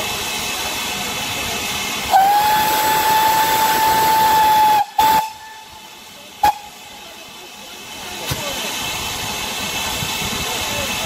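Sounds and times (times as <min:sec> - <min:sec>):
steam hissing: 0:00.0 - 0:11.0
steam locomotive whistle: 0:02.1 - 0:05.8, 0:06.4 - 0:06.8.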